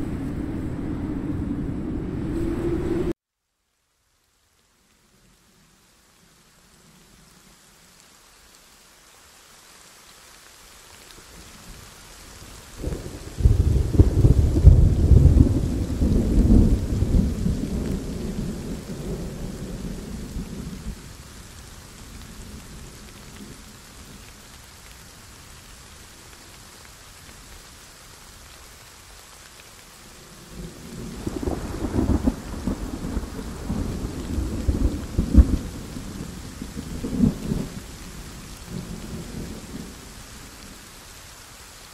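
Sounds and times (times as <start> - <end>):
thunder rumbling and cracking: 0.0 - 3.2, 12.8 - 21.0, 30.4 - 40.6
heavy rain: 0.0 - 41.9.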